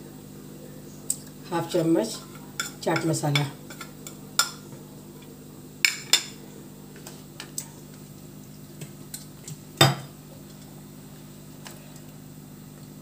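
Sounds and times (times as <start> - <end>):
low steady hum: 0.0 - 13.0
plates and spoon clinking: 5.8 - 6.4.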